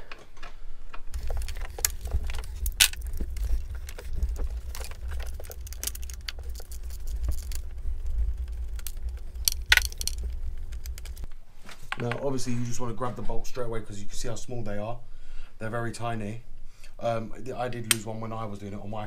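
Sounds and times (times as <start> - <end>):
low rumble: 1.2 - 11.3.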